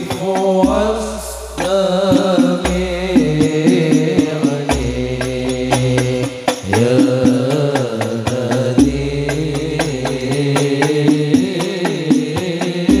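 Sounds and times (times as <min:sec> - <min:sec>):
frame drums beating: 0:00.0 - 0:13.0
man singing: 0:00.0 - 0:13.0
deep bass notes: 0:00.7 - 0:07.7.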